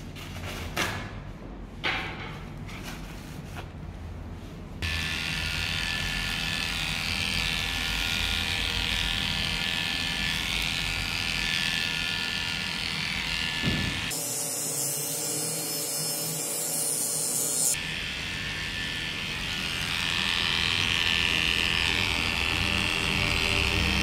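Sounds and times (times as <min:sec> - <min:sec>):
electric dog clippers running: 0:04.8 - 0:24.0.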